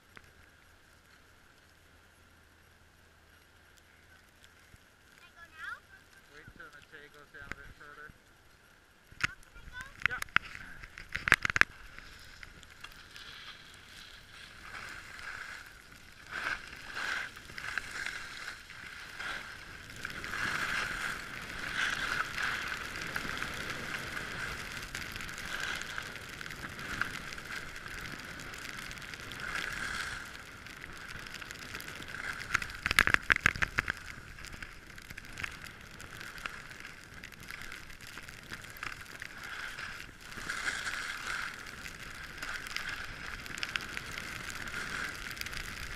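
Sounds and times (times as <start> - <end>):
skis scraping over snow: 9.3 - 45.9.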